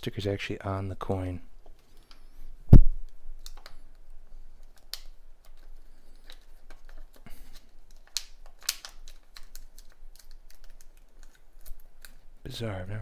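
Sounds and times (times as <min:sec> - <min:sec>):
plastic crinkling and clicking: 0:01.6 - 0:02.3, 0:03.0 - 0:12.3.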